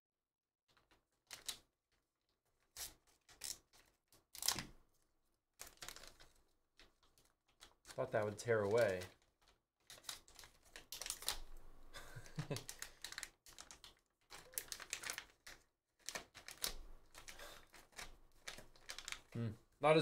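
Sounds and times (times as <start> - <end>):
foil wrapper crinkling: 5.6 - 19.4.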